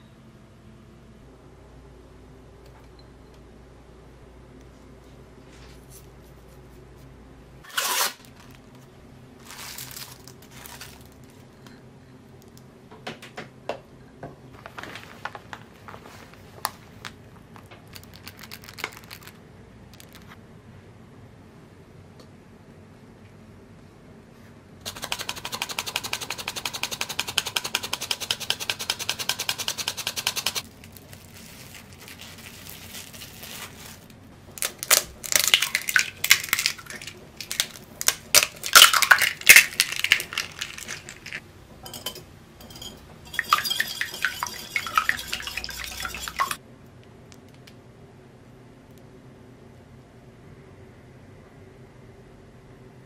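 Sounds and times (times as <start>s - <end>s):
whisk scratching in wooden bowl: 24.9s - 30.6s, 42.8s - 46.6s
eggs cracking on glass bowl: 34.6s - 46.6s
whisk clinking against glass: 38.8s - 46.6s.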